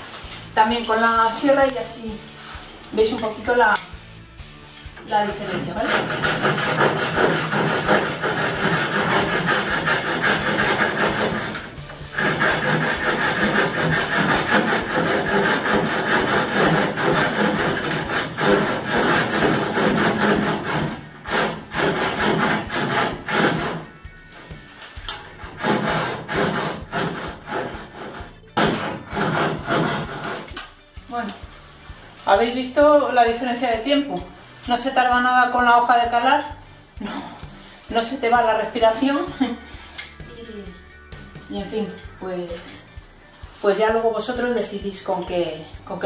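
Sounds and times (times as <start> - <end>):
hand saw cutting plaster: 5.3 - 23.9, 25.3 - 30.6.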